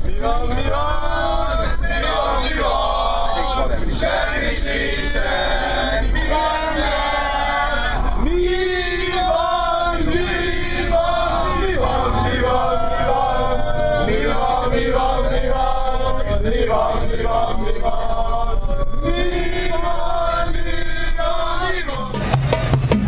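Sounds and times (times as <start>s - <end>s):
group of voices chanting: 0.0s - 22.1s.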